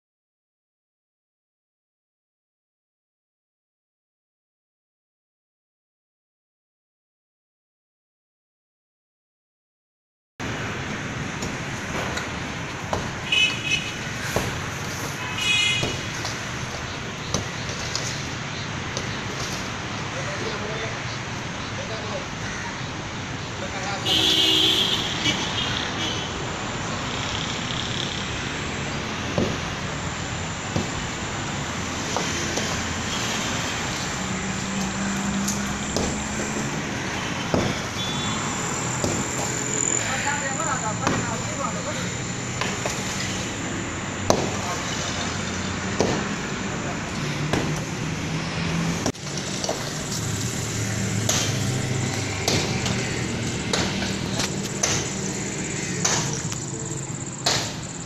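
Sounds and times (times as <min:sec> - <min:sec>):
rushing outdoor background noise: 0:10.4 - 0:58.0
sharp knock: 0:56.0 - 0:56.4, 0:57.4 - 0:57.8.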